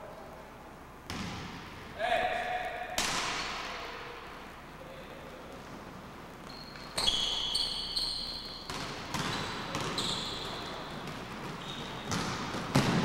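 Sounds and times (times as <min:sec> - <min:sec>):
basketball bouncing: 0:01.1 - 0:01.7, 0:08.5 - 0:13.0
sneakers squeaking on hardwood: 0:06.3 - 0:13.0.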